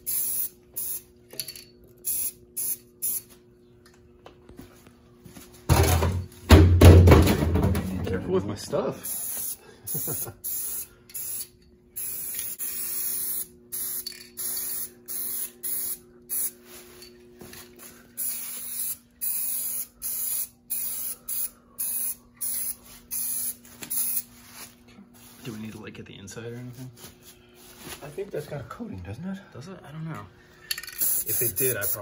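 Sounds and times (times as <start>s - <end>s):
spray can hissing: 0.0s - 1.1s, 2.0s - 3.3s, 9.0s - 17.0s, 18.2s - 24.3s, 31.0s - 32.0s.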